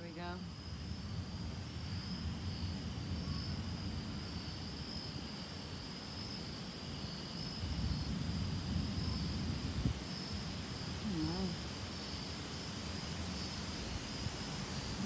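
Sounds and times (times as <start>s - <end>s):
insects chirping: 0.0s - 15.0s
wind buffeting microphone: 7.5s - 11.8s.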